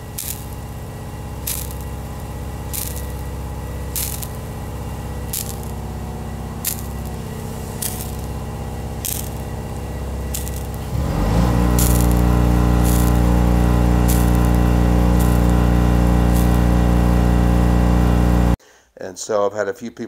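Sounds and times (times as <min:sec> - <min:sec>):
low machine hum: 0:00.0 - 0:18.6
water spraying onto concrete: 0:00.0 - 0:18.6
short hissy spurts: 0:05.3 - 0:17.5.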